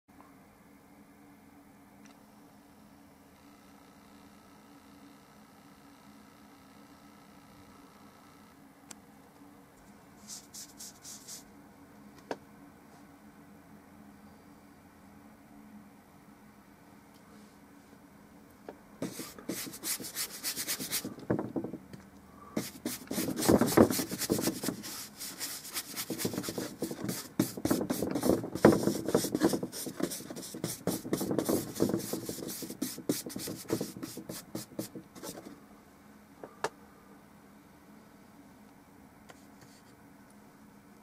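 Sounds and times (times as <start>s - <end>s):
bristle brush scrubbing paint: 10.2s - 11.4s, 19.0s - 21.1s, 22.6s - 35.5s.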